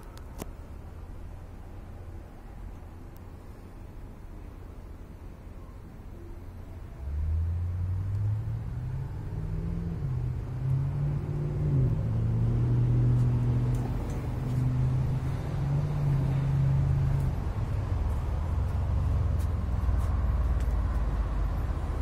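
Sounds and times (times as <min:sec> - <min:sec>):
engine running: 0:06.4 - 0:22.0.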